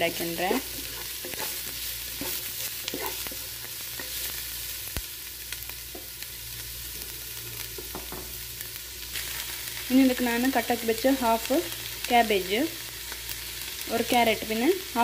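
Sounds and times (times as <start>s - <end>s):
onions sizzling in oil: 0.0s - 15.0s
wooden spatula stirring: 0.3s - 4.2s.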